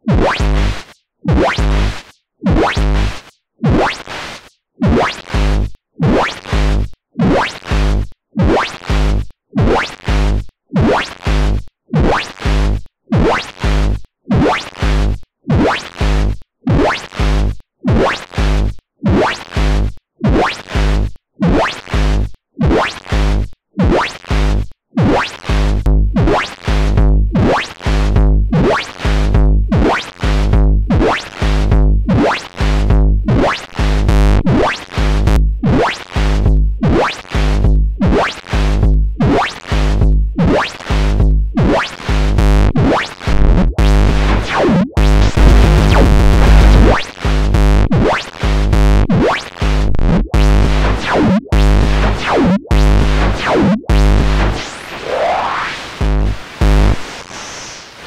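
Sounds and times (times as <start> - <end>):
pulsing synthesized white noise: 44.0 - 47.0, 50.4 - 58.0
deep low thud: 45.2 - 47.0.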